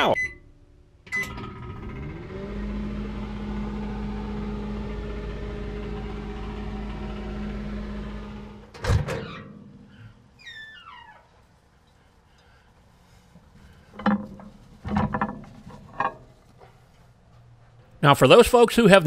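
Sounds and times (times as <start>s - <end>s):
microwave oven humming: 0.0s - 9.4s.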